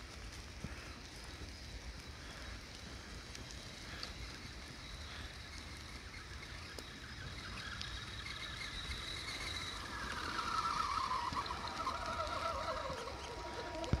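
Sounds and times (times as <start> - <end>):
toy car motor whining: 5.1 - 14.0.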